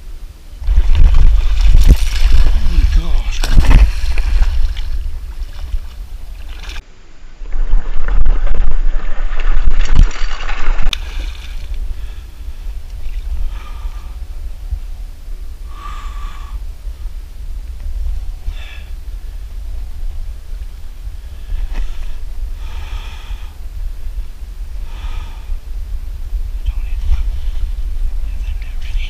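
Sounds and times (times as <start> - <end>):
water splashing and churning: 0.6 - 14.0.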